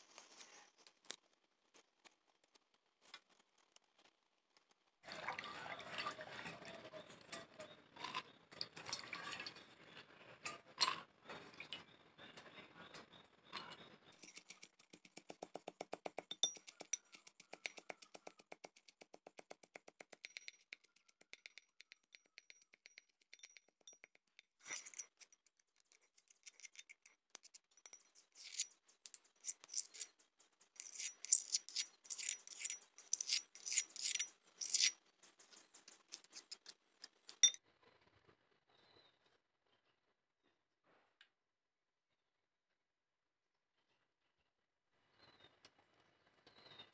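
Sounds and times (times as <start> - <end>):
spoon scraping a mortar: 13.6 - 37.6.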